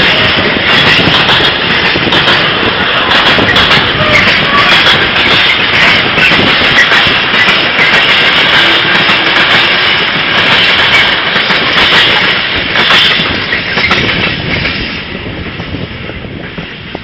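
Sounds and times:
train wheel knocks: 0:00.0 - 0:14.9
freight train rolling past: 0:00.0 - 0:17.0.

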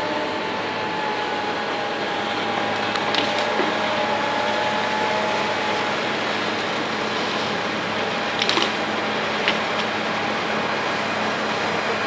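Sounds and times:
excavator whining: 0:00.0 - 0:12.0
wood cracking: 0:02.9 - 0:03.7, 0:08.4 - 0:08.8.

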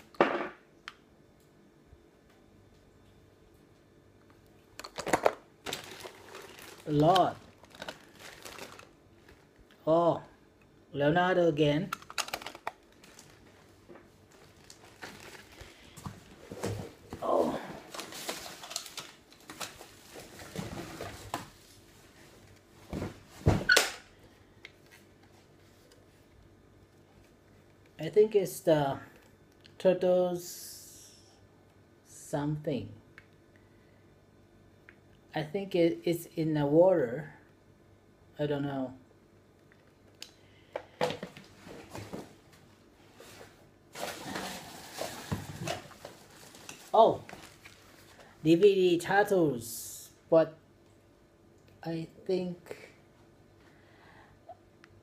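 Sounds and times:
rustling: 0:05.1 - 0:09.6, 0:12.1 - 0:23.5, 0:41.5 - 0:48.4
plastic toy clicks and knocks: 0:11.9 - 0:12.8.

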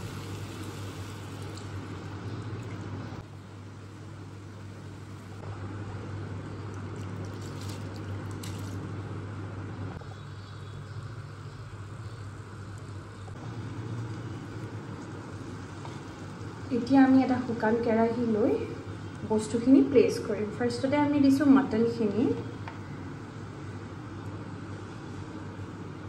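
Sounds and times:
broth bubbling in a pan: 0:00.0 - 0:03.2.

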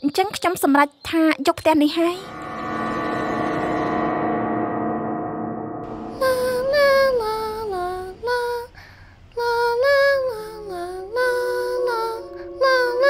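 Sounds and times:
gong ringing: 0:02.2 - 0:08.0, 0:11.8 - 0:13.0
woman singing lullaby melody: 0:06.0 - 0:13.0.

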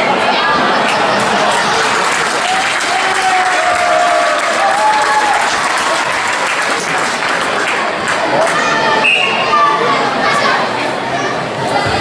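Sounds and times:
crowd applauding: 0:00.7 - 0:09.2.

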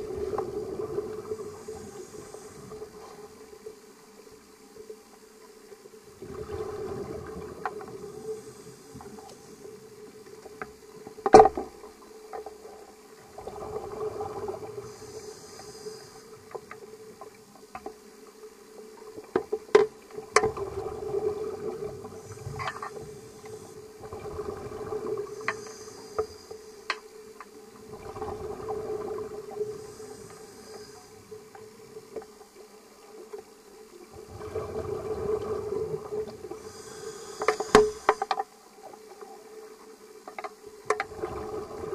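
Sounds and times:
exhaled bubbles: 0:00.0 - 0:03.0, 0:06.2 - 0:09.2, 0:13.2 - 0:16.0, 0:20.3 - 0:26.1, 0:27.8 - 0:32.1, 0:34.0 - 0:38.1, 0:41.0 - 0:41.9
regulator inhale hiss: 0:00.1 - 0:03.6, 0:07.7 - 0:10.2, 0:13.4 - 0:17.1, 0:21.3 - 0:24.2, 0:24.8 - 0:27.4, 0:29.0 - 0:31.7, 0:35.4 - 0:38.5.

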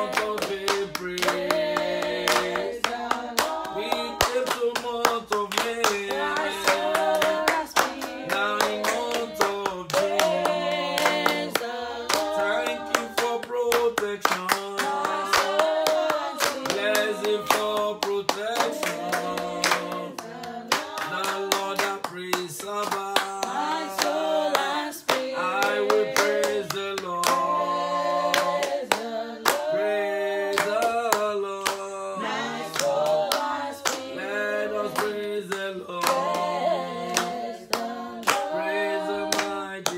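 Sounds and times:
hand clapping: 0:00.0 - 0:39.9
man singing unaccompanied: 0:03.5 - 0:10.3, 0:12.2 - 0:15.6, 0:20.8 - 0:27.6.

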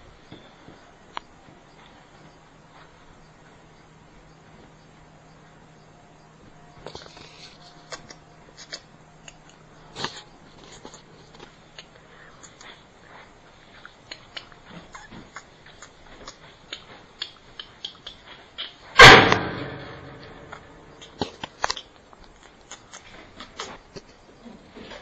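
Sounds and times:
loud bang: 0:19.0 - 0:21.0.

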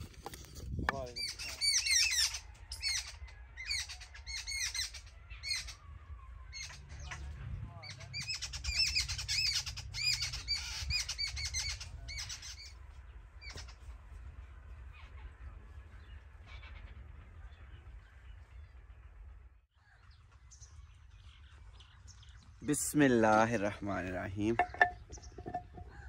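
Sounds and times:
birds chirping: 0:00.0 - 0:26.0.

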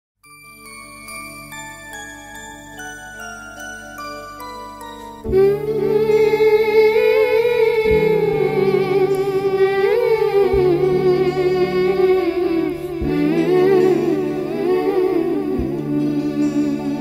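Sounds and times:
low sustained chords: 0:04.4 - 0:17.0
wordless vocal with vibrato: 0:04.9 - 0:17.0.

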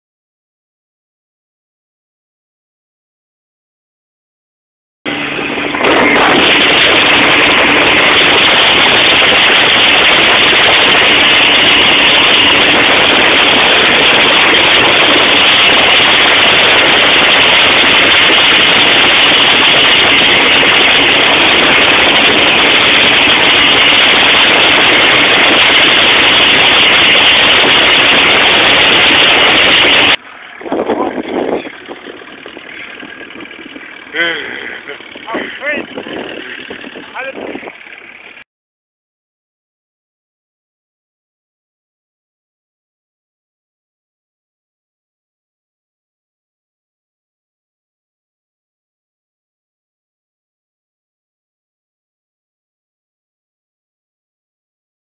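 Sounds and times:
rushing wind and spray: 0:05.1 - 0:34.2, 0:34.8 - 0:38.4
powerboat engine roaring: 0:05.1 - 0:38.4.

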